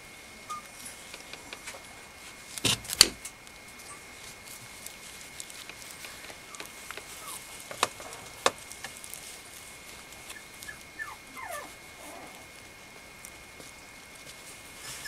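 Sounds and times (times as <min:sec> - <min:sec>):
puppy whimpering: 0:06.3 - 0:07.5, 0:10.3 - 0:12.6.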